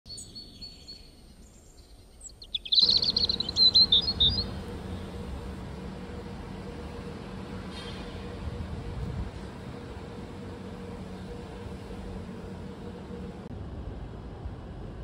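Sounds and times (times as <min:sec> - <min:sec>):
bird chirping: 0:00.1 - 0:05.6.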